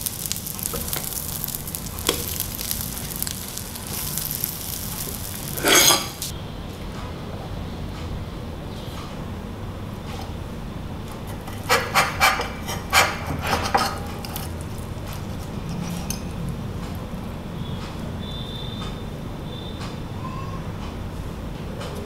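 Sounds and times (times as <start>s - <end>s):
knife and fork scraping a plate: 4.7s - 6.3s, 11.2s - 16.4s.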